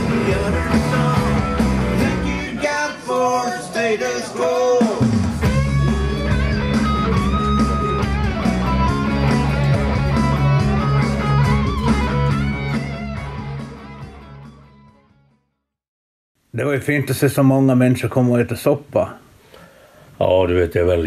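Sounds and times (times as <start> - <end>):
rock song with electric guitar: 0.0 - 2.8, 4.7 - 14.9.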